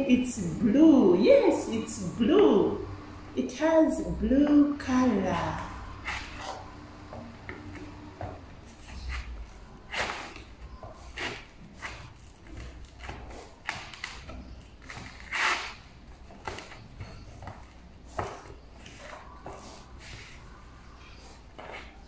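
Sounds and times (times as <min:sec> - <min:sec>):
hands kneading play dough: 0:04.4 - 0:22.0.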